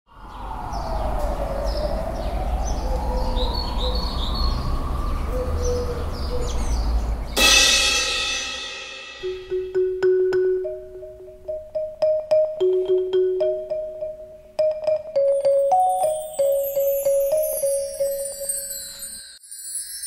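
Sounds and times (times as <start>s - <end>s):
birds chirping: 0.1s - 7.6s, 9.2s - 19.3s
bright chime crash: 7.4s - 9.7s, 15.8s - 20.0s
soft tuned notes: 9.2s - 19.2s.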